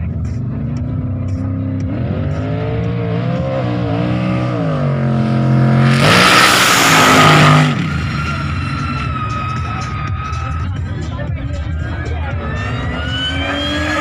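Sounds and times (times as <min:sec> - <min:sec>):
car engine revving hard: 0:01.3 - 0:09.1, 0:12.4 - 0:14.0
tyre squeal: 0:06.8 - 0:10.9, 0:12.6 - 0:14.0.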